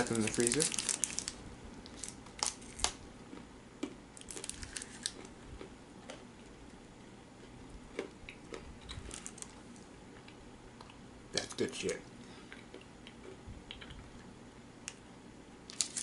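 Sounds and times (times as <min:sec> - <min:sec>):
snack wrapper crinkling: 0:00.0 - 0:03.0, 0:04.2 - 0:05.3, 0:08.9 - 0:09.6, 0:15.7 - 0:16.0.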